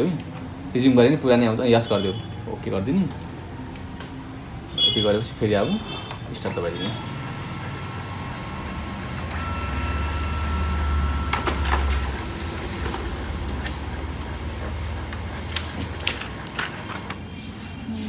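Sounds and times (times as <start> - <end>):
printer motor hum: 2.7 - 17.3
printer clicks feeding paper: 11.1 - 17.2.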